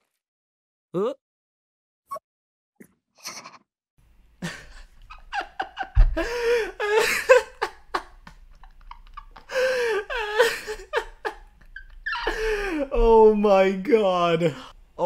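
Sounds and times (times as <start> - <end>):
breaths: 6.2 - 6.8, 9.5 - 10.1, 12.2 - 12.8.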